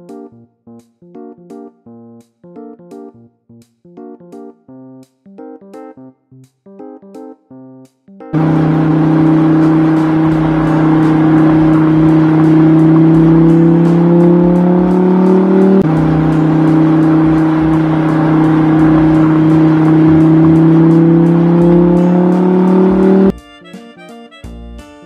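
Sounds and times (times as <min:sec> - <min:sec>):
piano-like music: 0:08.3 - 0:23.4
car engine accelerating: 0:08.4 - 0:23.3.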